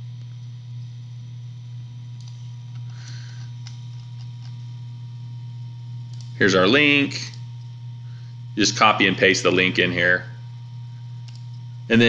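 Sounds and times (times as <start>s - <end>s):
low electrical hum: 0.0s - 12.0s
computer mouse clicks: 2.2s - 2.4s, 6.1s - 6.4s, 11.2s - 11.6s.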